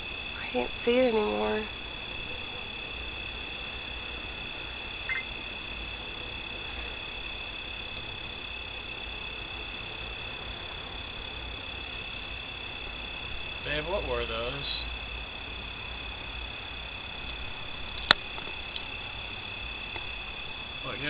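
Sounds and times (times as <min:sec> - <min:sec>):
frogs and insects calling: 0:00.0 - 0:21.0.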